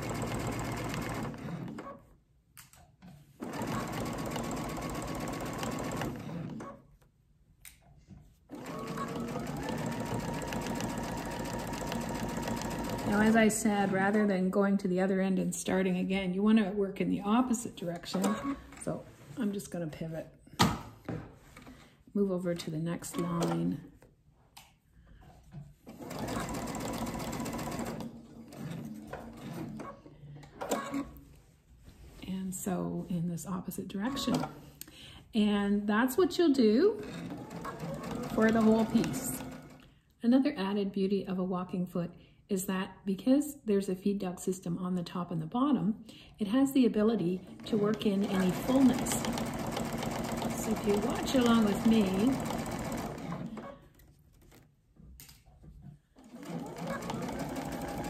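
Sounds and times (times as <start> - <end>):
sewing machine stitching: 0.0 - 2.1, 3.4 - 6.8, 8.5 - 14.2, 25.8 - 30.0, 37.0 - 39.8, 47.2 - 54.6, 56.2 - 58.0.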